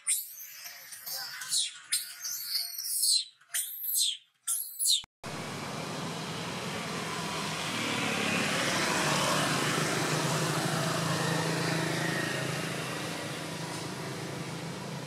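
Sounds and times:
motor vehicle passing: 0:05.3 - 0:15.0.

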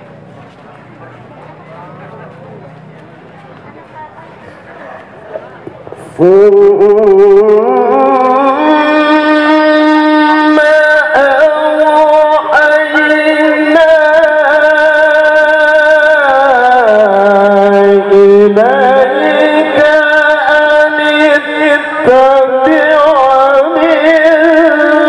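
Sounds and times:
man reciting melodically: 0:06.0 - 0:25.0.

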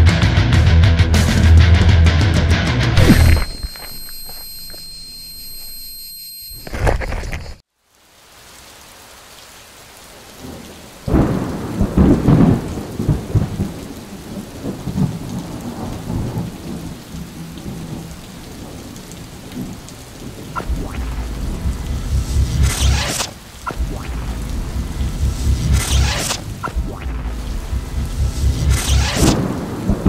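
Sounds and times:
steady rain: 0:07.6 - 0:30.0
thunder clap rolling: 0:11.1 - 0:17.0, 0:23.7 - 0:30.0.

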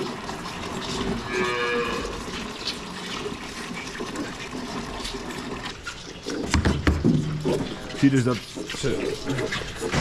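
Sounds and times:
calf mooing: 0:01.3 - 0:02.2.

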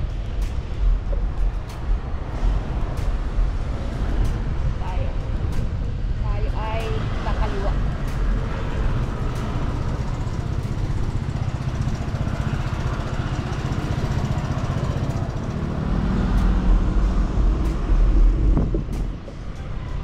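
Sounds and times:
road traffic rumble: 0:00.0 - 0:20.0.

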